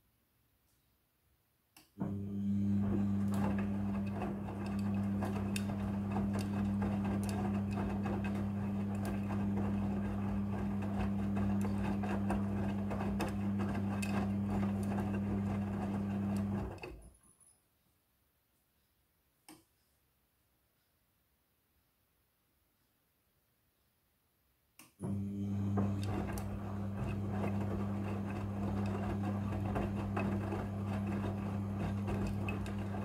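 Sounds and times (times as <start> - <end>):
washing machine motor hum: 2.0 - 17.0, 25.0 - 33.0.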